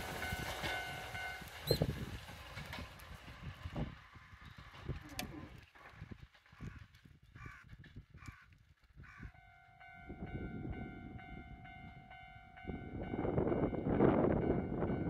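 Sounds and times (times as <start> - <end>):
level crossing alarm ringing: 0.0 - 1.8, 9.3 - 15.0
crows cawing: 6.5 - 9.4.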